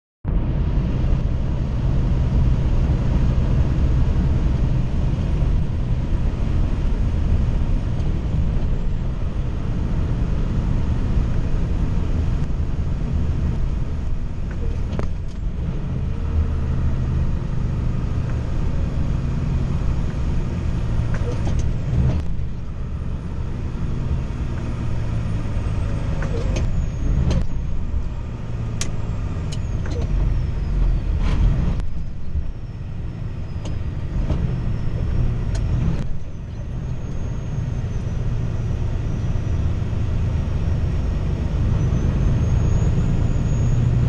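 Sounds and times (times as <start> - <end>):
engine and tyre rumble: 0.2 - 44.0.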